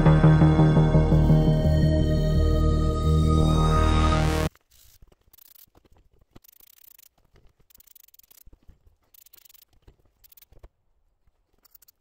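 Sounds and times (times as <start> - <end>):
small parts and tools clicking: 4.5 - 10.8, 11.4 - 12.0.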